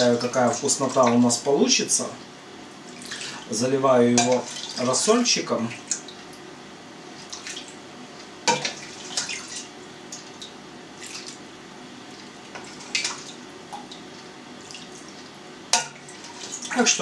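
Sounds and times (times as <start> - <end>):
liquid splashing and dripping: 4.2 - 4.9, 7.2 - 11.4, 12.1 - 16.8.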